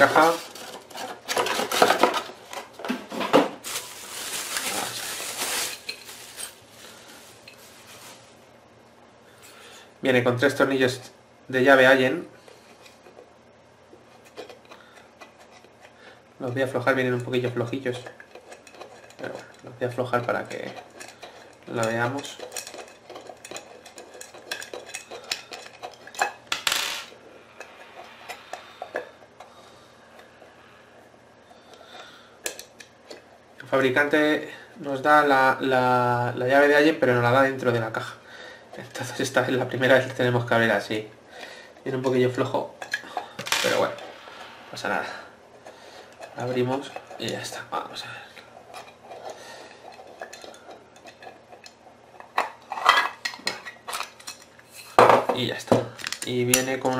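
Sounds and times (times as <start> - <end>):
bubble wrap crinkling: 3.6 - 8.5
metal scrape: 27.1 - 32.1, 42.8 - 47.3.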